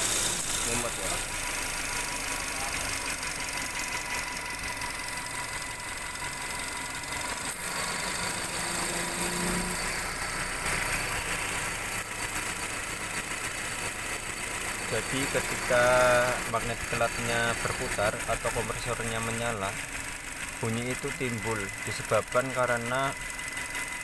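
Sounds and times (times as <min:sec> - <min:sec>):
car engine idling: 0:00.0 - 0:24.0
compressor clutch jingling rattle: 0:00.0 - 0:24.0.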